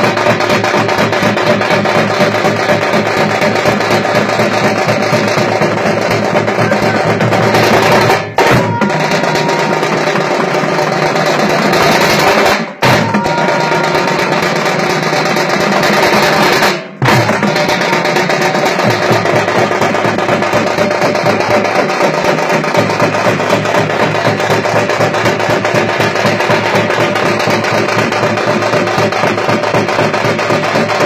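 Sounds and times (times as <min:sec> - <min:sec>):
frame drums beaten with sticks: 0:00.0 - 0:31.0.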